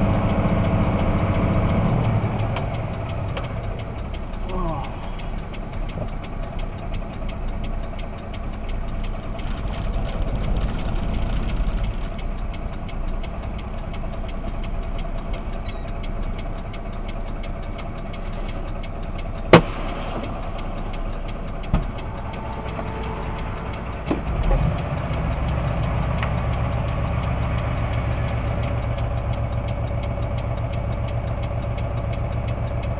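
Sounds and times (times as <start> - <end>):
vehicle engine idling: 0.0 - 32.9
clunk: 19.5 - 25.2.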